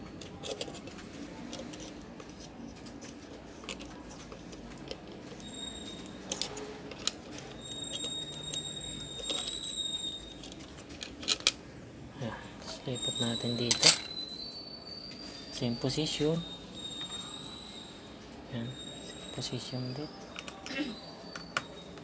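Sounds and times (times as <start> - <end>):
metal tool clicking and scraping: 0.1 - 11.6
faint high whistle: 12.9 - 22.0.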